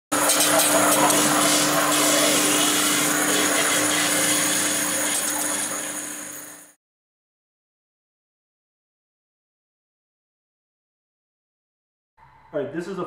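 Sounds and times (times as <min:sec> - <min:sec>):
machine hissing: 0:00.1 - 0:06.8
constant machine hum: 0:00.2 - 0:06.7.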